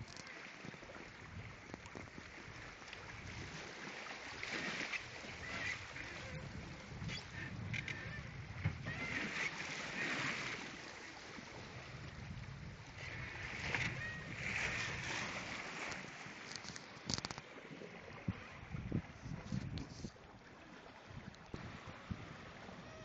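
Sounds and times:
water rushing along hull: 0.0s - 23.0s
wind buffeting microphone: 4.3s - 9.8s, 11.4s - 15.9s, 17.1s - 23.0s.

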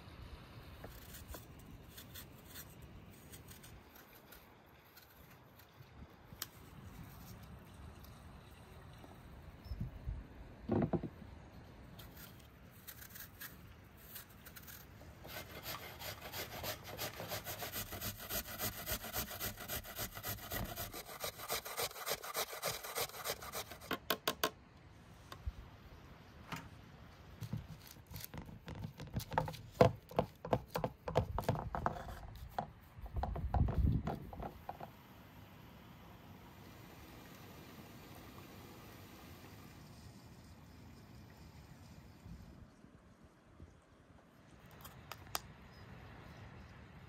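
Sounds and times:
taps and thumps: 32.6s - 34.9s.

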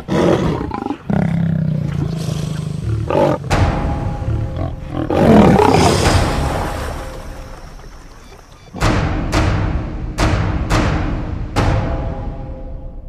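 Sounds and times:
tiger roar: 0.0s - 6.1s
dramatic intro music: 2.1s - 13.0s
sharp impact hit: 2.2s - 8.2s.

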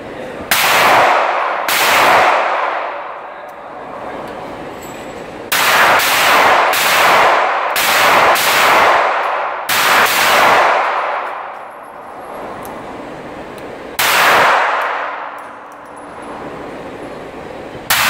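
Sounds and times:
pistol shots echoing: 0.5s - 3.2s, 5.5s - 11.5s, 14.0s - 15.4s.

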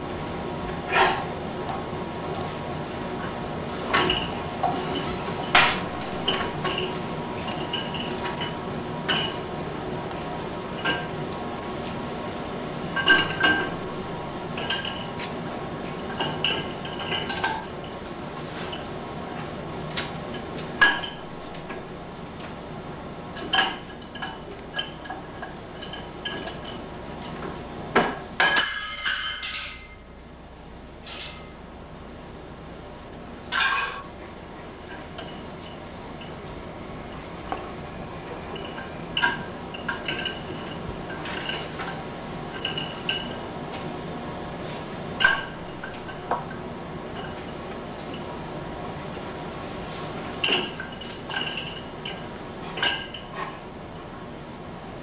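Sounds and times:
dishes clinking on a wire rack: 3.9s - 9.4s, 10.8s - 11.2s, 13.0s - 13.9s, 14.6s - 15.3s, 16.0s - 18.0s, 20.3s - 21.8s, 23.4s - 27.4s, 28.0s - 30.0s, 33.5s - 34.2s, 38.5s - 43.4s, 45.2s - 48.3s, 50.3s - 53.6s.

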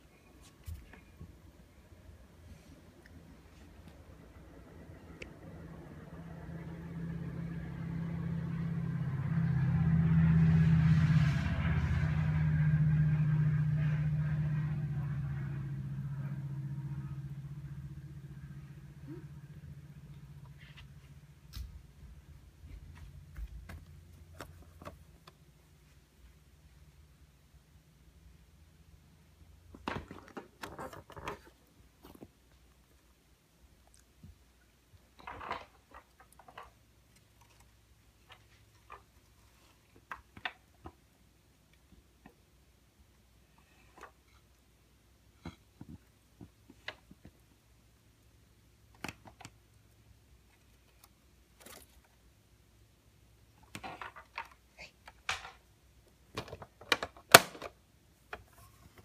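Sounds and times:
low engine drone: 4.0s - 21.5s.

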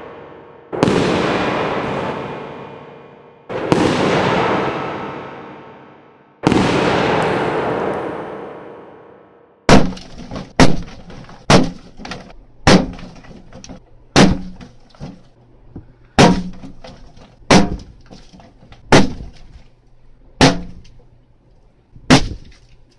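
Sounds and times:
balloons popping: 9.7s - 15.3s, 22.0s - 22.6s.

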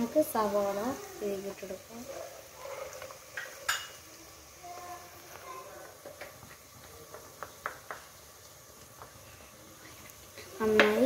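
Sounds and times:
steel bowl knocking on frying pan: 7.1s - 8.1s, 10.7s - 11.0s.

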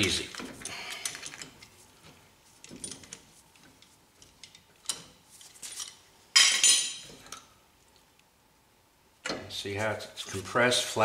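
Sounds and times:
small metallic clicks and scrapes: 0.0s - 6.0s.

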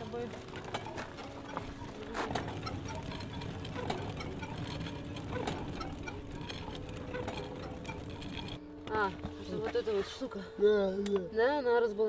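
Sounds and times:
sharp wheelchair click: 0.0s - 8.6s
wheelchair wheels rattling on asphalt: 0.0s - 9.8s.

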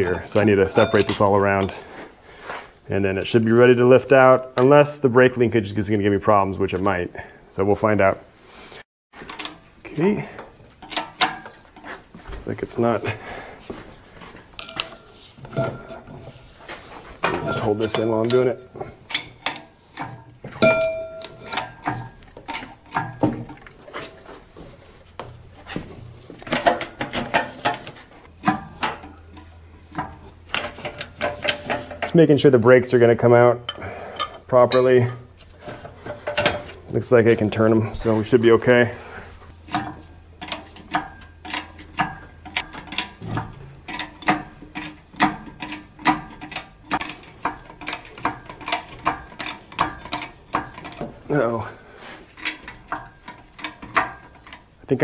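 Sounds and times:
metal clinks and knocks: 0.0s - 1.9s, 9.2s - 13.0s, 13.7s - 32.3s, 33.2s - 38.8s, 39.5s - 55.0s
hand pumped hoist clicking: 14.5s - 24.2s, 26.2s - 32.2s, 39.5s - 55.0s.

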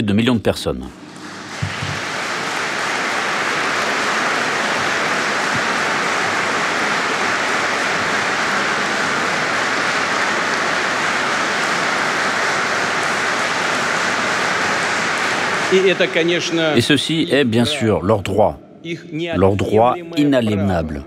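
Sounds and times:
audience applauding: 1.1s - 17.6s.

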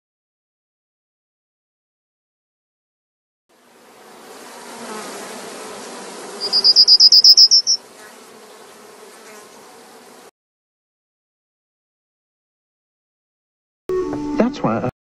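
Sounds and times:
insect chirping: 5.0s - 7.8s.

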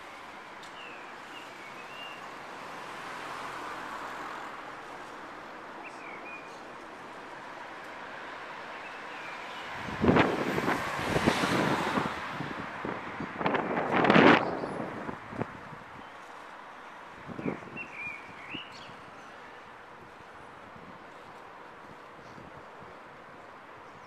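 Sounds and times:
city traffic hum: 0.0s - 24.0s
wind buffeting microphone: 9.6s - 16.1s, 17.1s - 19.2s.

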